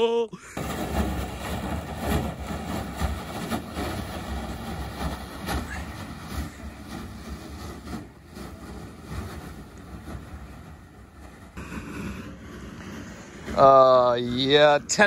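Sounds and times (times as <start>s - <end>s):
kayak dragged over snow: 0.6s - 15.0s.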